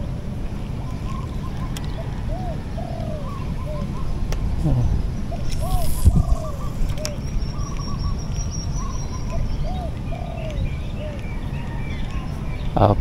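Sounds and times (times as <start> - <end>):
steady low rumble: 0.0 - 9.9
birds calling: 0.6 - 13.0.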